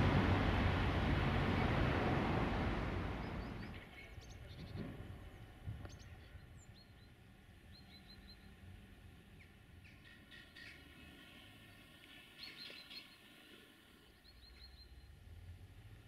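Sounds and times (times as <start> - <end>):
train rumble: 0.0 - 6.2
small birds chirping: 3.2 - 11.2, 11.9 - 15.3.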